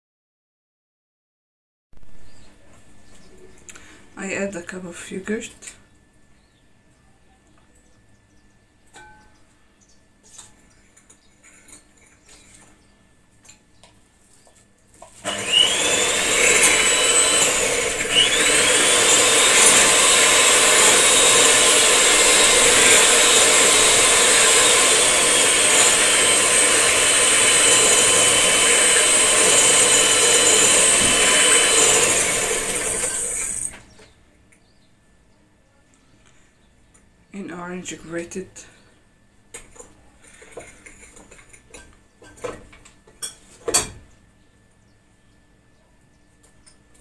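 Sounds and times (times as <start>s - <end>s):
electric hand mixer whining: 15.2s - 33.8s.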